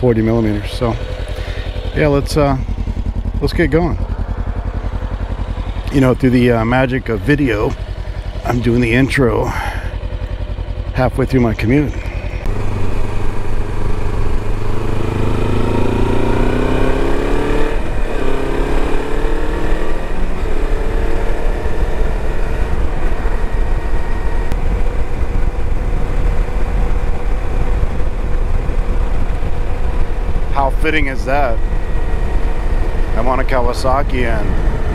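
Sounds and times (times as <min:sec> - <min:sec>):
motorcycle engine accelerating: 0:00.0 - 0:34.9
wind rumble on microphone: 0:21.7 - 0:34.9.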